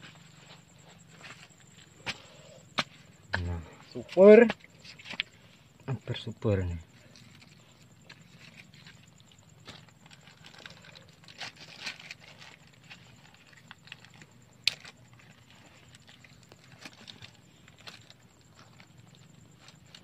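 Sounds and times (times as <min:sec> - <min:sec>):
crab net trap rustling and scraping: 0:04.6 - 0:05.6, 0:07.0 - 0:20.0.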